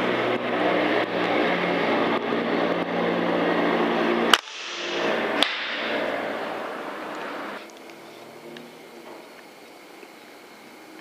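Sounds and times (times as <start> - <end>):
machinery hum: 0.0 - 11.0
air rifle shot: 4.3 - 6.0.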